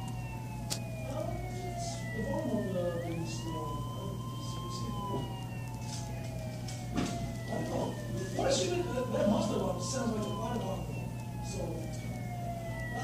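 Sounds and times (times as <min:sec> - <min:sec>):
sirens wailing: 0:00.0 - 0:13.0
steady low hum: 0:00.0 - 0:13.0.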